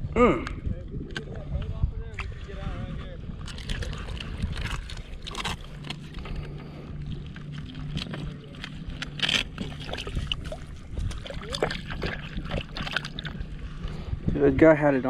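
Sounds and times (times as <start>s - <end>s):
water splashing and dripping: 7.5s - 13.4s.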